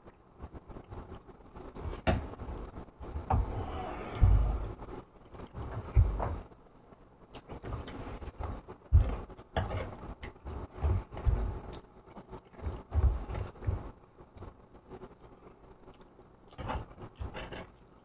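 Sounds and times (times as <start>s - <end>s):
dull low thumps: 3.1s - 5.0s.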